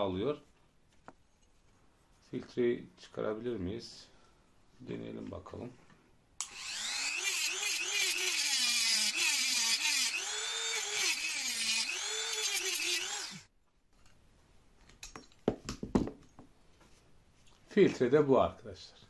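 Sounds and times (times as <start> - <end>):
rotary tool cutting metal: 6.4 - 13.5.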